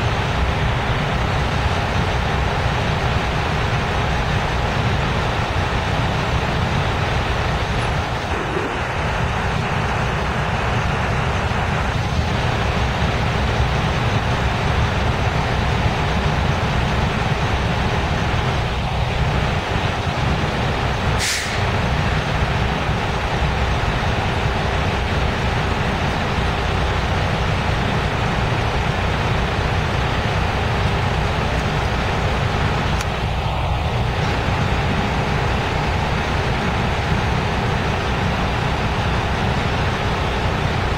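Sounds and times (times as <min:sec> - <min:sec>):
freight train rumbling past: 0:00.0 - 0:40.9
sharp hiss: 0:21.2 - 0:21.8.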